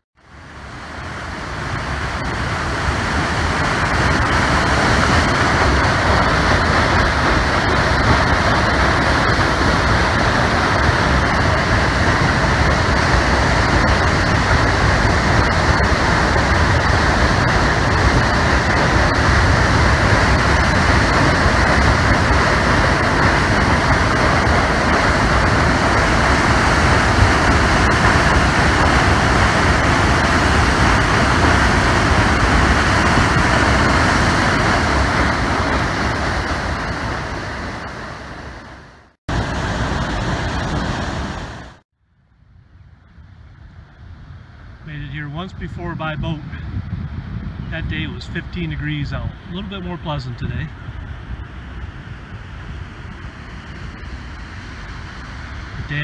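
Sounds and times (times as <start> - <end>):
rushing floodwater over spillway: 0.2 - 38.5.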